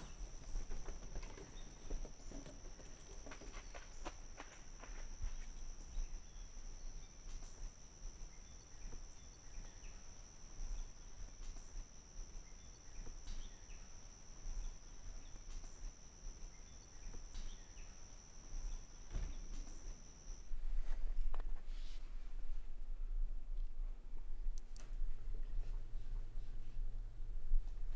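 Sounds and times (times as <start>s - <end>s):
faint footsteps: 0.0s - 9.1s
high insect trill: 0.0s - 20.6s
low hum: 0.0s - 27.9s
woodland ambience: 0.0s - 27.9s.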